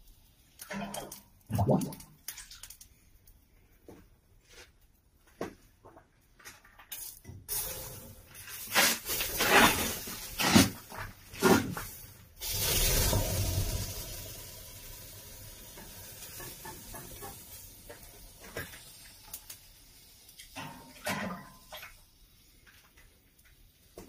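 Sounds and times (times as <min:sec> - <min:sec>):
hiss of steam: 0:07.5 - 0:10.6, 0:11.4 - 0:20.2.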